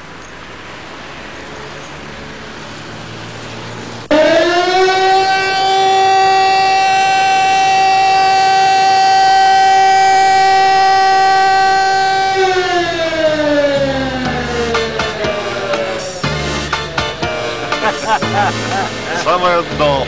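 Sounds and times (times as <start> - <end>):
factory siren: 4.0 - 19.7.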